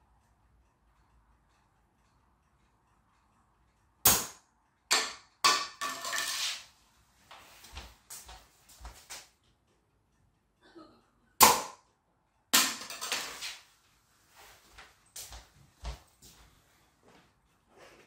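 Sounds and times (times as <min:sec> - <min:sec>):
plastic glider clattering on floor: 0:05.8 - 0:06.7, 0:12.8 - 0:13.7
soft footsteps: 0:07.1 - 0:09.3, 0:13.4 - 0:18.0.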